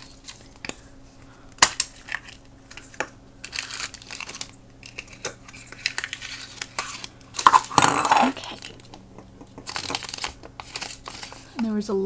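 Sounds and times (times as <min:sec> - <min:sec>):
plastic packet crinkling: 0:01.6 - 0:09.0, 0:09.6 - 0:11.6.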